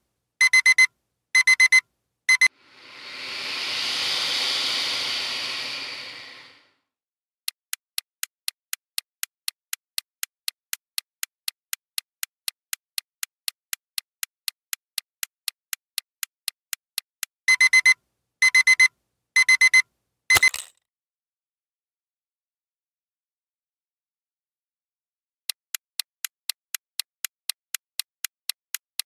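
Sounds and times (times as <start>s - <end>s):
alarm clock beeping: 0.4s - 2.5s, 17.5s - 20.5s
clock ticking: 8.0s - 19.8s, 25.5s - 29.0s.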